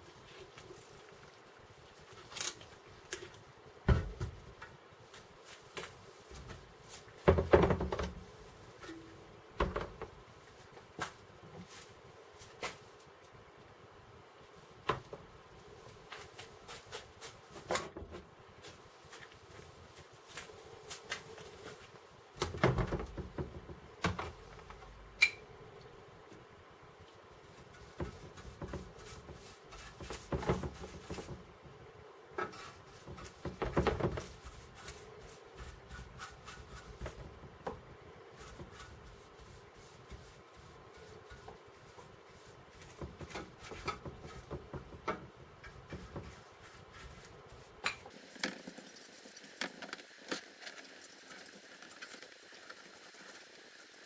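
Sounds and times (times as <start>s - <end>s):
paintbrush scrubbing on metal: 27.4s - 31.4s, 32.4s - 37.5s, 38.2s - 48.1s.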